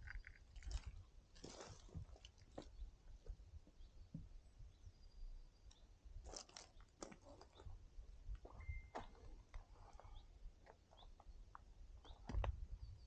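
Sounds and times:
footsteps on loose stones: 0.0 - 2.8, 6.2 - 7.7.

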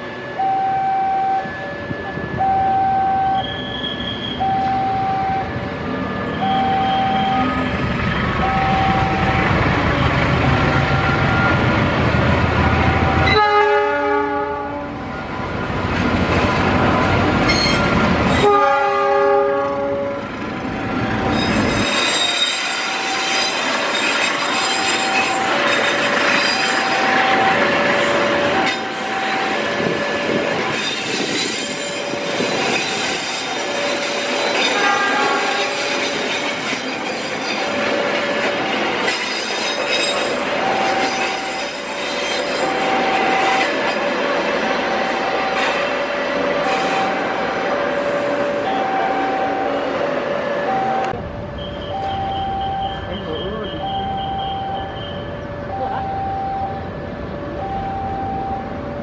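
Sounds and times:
locomotive engine and wheels rumbling: 0.0 - 59.0
short electronic beep: 6.3 - 10.2, 50.7 - 56.9, 57.6 - 58.7
locomotive chord horn: 13.2 - 15.0, 17.4 - 20.4, 34.6 - 36.0.

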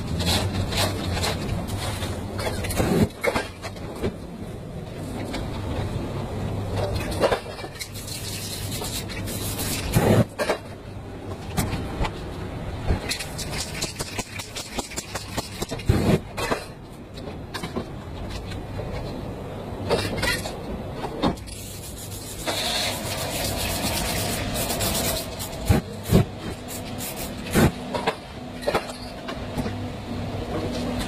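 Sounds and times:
spray paint can hissing: 21.5 - 27.7.

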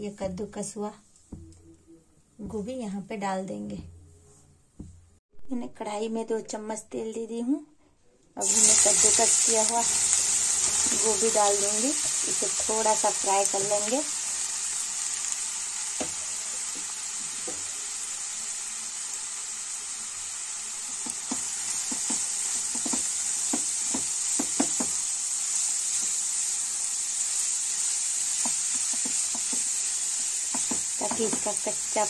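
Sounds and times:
vegetables sizzling in oil: 8.4 - 32.0
spatula knocking and scraping pan: 21.0 - 25.0, 28.4 - 31.8.

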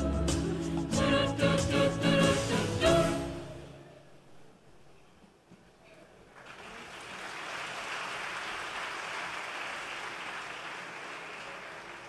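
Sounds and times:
choir singing: 0.0 - 3.8
audience applause: 6.3 - 12.0.

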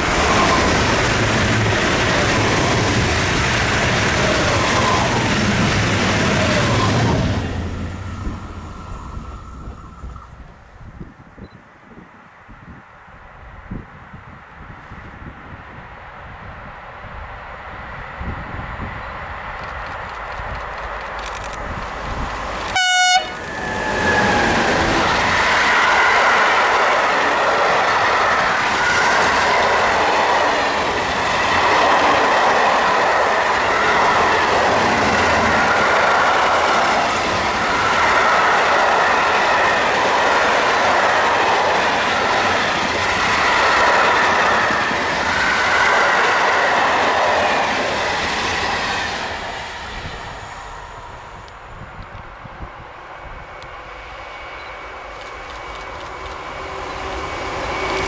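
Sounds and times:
train rolling past: 0.0 - 11.6, 14.7 - 58.0
squealing wheels: 0.1 - 1.1, 6.1 - 7.5, 54.3 - 58.0
train horn blast: 22.6 - 24.6.

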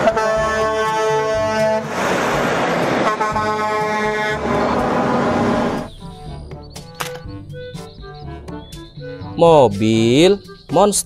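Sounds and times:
truck air horn blasts: 0.0 - 5.9
trucks passing on road: 0.0 - 6.0.

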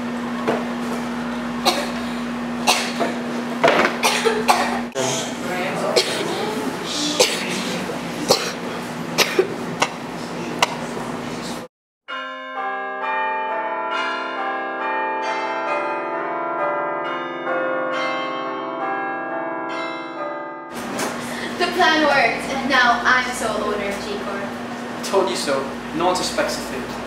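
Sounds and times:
steady low hum: 0.0 - 11.7, 20.8 - 27.0
sustained ringing music notes: 12.1 - 21.8.

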